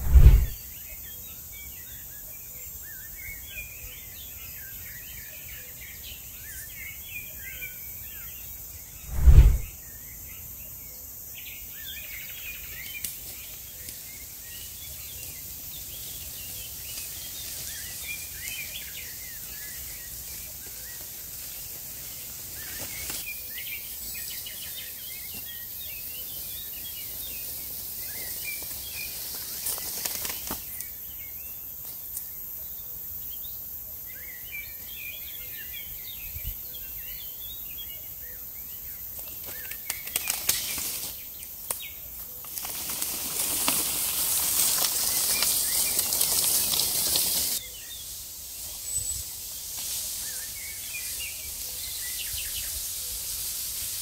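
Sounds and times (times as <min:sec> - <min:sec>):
brief rustle: 0:00.0 - 0:00.6, 0:09.1 - 0:09.7
woodland birds chirping: 0:10.1 - 0:53.7
steady high hiss: 0:43.4 - 0:54.0.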